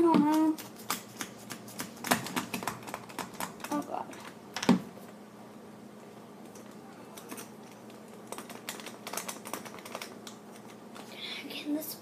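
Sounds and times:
hands tapping: 0.0 - 3.8.

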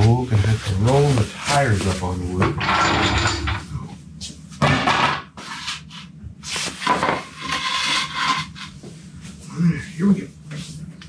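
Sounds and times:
objects scraping on concrete floor: 4.9 - 9.0.

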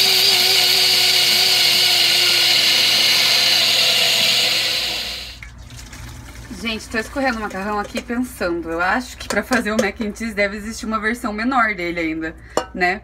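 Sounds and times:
blender running: 0.0 - 5.4.

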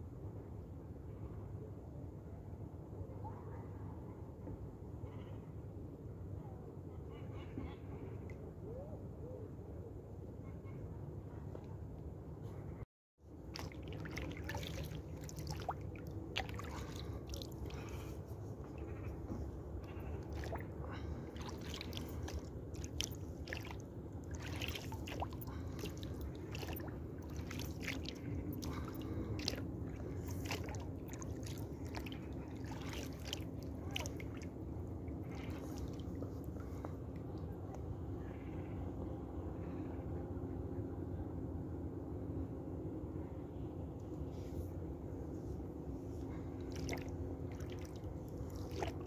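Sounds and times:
steady low rumble: 12.0 - 49.0
water drips and splashes: 13.4 - 19.0, 19.8 - 36.9, 46.6 - 49.0.

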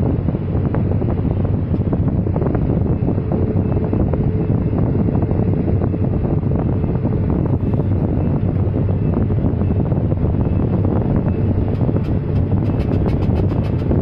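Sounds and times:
excavator diesel engine droning: 0.0 - 14.0
rattle of short clicks: 12.0 - 14.0.

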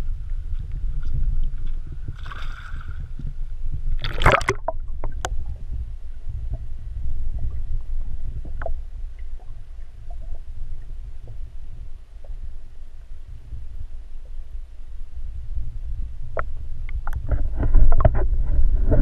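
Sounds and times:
muffled underwater rumble: 0.0 - 19.0
splash into water: 2.2 - 3.1, 4.0 - 4.7
faint underwater clicks: 4.0 - 5.6, 6.4 - 11.6, 16.3 - 18.2.

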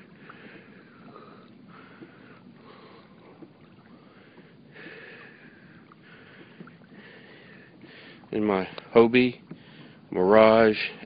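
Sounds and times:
water swishing along kayak hull: 0.0 - 11.0
light ticks: 8.6 - 10.0.

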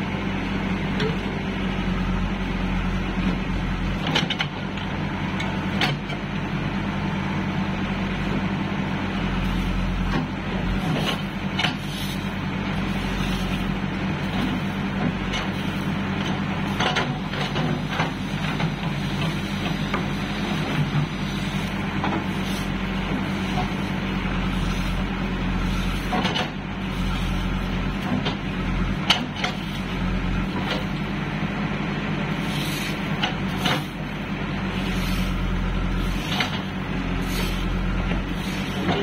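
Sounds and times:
diesel engine running: 0.0 - 39.0
bucket and arm clanking: 36.1 - 39.0.

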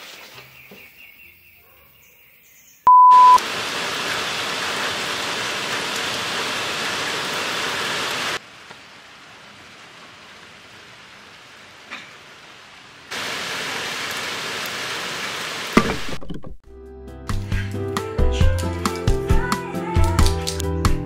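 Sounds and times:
electronic beep: 2.9 - 3.4
heavy rain falling: 3.4 - 16.2.

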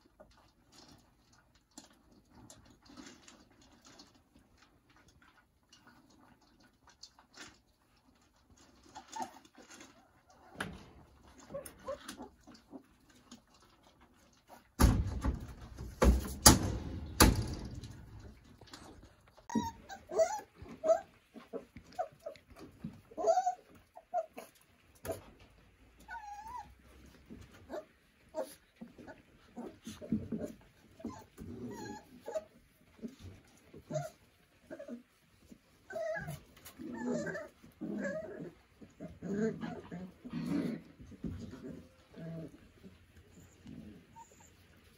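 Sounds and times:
rustling: 0.0 - 44.9
puppies whimpering and yelping: 1.9 - 14.7, 17.4 - 44.9.

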